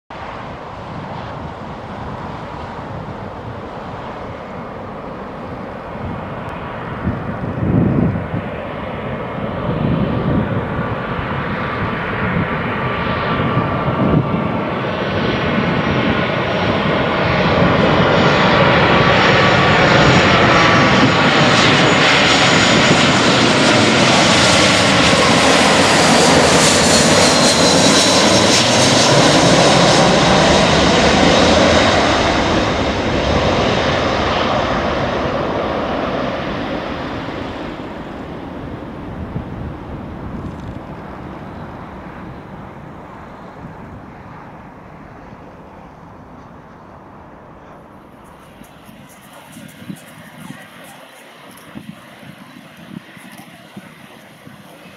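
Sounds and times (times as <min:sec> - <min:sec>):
jet engines rumbling: 0:00.1 - 0:54.9
high engine whine: 0:36.8 - 0:54.9.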